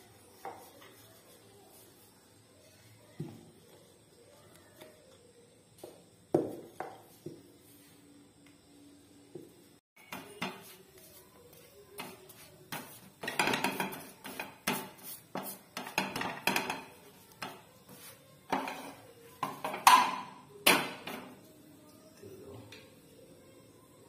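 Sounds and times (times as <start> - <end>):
spatula scraping frying pan: 12.0 - 20.0
metal dishes clinking: 18.5 - 20.4.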